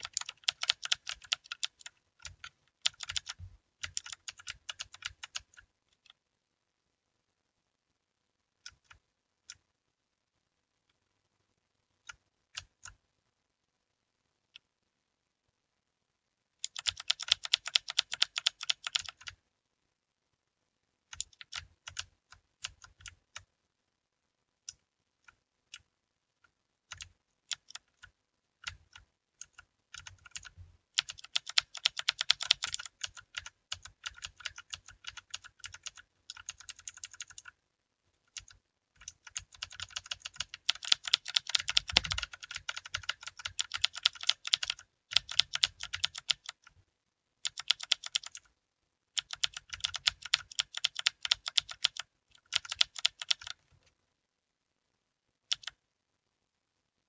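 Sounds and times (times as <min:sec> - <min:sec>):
mechanical keyboard typing: 0:00.0 - 0:06.2, 0:12.0 - 0:13.0, 0:16.6 - 0:19.4, 0:21.1 - 0:23.5, 0:26.9 - 0:37.6, 0:38.3 - 0:46.7, 0:47.4 - 0:48.5, 0:49.2 - 0:53.6, 0:55.5 - 0:55.8.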